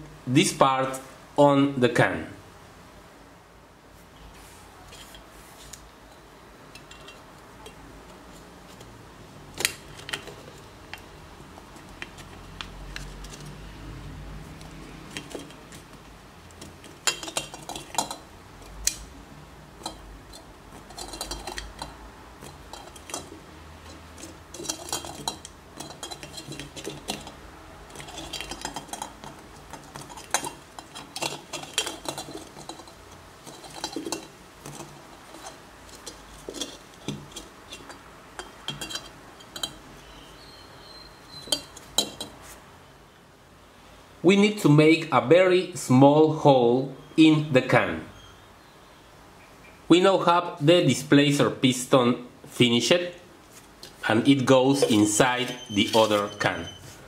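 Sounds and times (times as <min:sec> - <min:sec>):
light metallic clinks and taps: 0:28.0 - 0:39.8.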